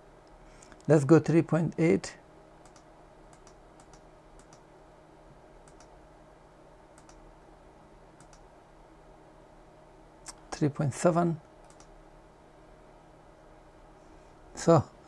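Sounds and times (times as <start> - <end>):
low steady hum: 0.0 - 15.0
faint control clicks: 2.6 - 4.6, 5.6 - 6.0, 7.0 - 7.2, 8.2 - 8.5, 11.6 - 12.0.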